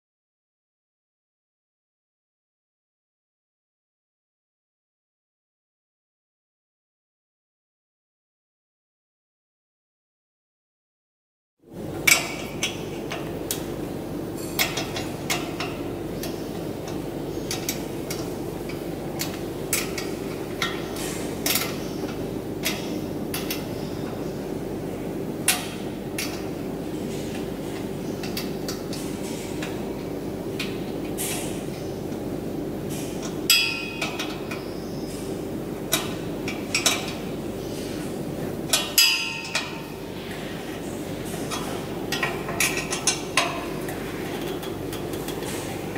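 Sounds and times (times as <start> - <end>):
steady hum: 11.6 - 45.9.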